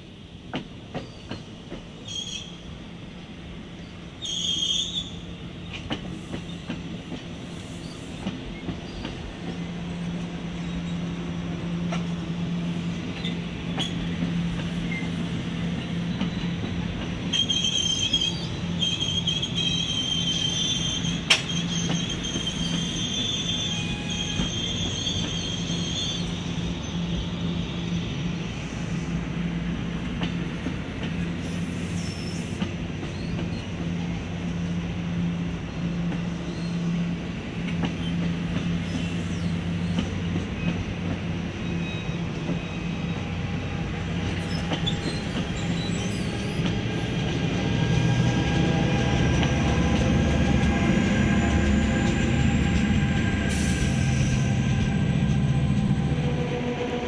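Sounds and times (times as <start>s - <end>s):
train wheels rumbling: 0.0s - 57.0s
locomotive engine hum: 5.1s - 57.0s
wheel squeal: 17.3s - 26.6s, 44.4s - 46.7s.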